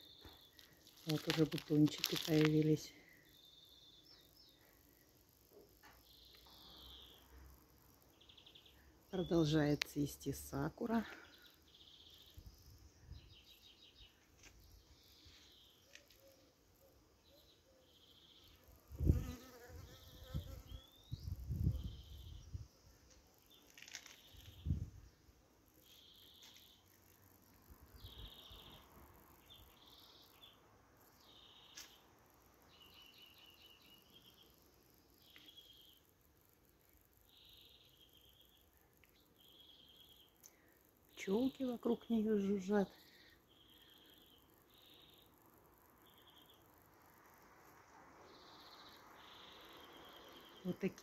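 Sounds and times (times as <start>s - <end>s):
bird chirping: 28.0s - 30.6s, 32.7s - 36.1s, 37.0s - 40.5s, 43.5s - 46.7s, 48.2s - 51.0s.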